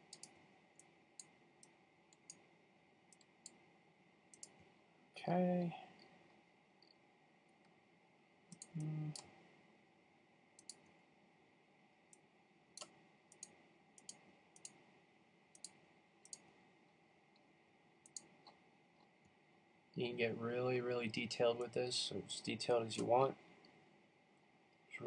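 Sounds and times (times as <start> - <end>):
computer mouse clicking: 0.0 - 2.5, 3.1 - 3.6, 4.3 - 4.7, 8.5 - 9.4, 10.6 - 11.0, 12.8 - 14.8, 15.5 - 16.5, 17.3 - 19.1
faint room hiss: 0.0 - 25.0
man murmuring: 8.8 - 9.2.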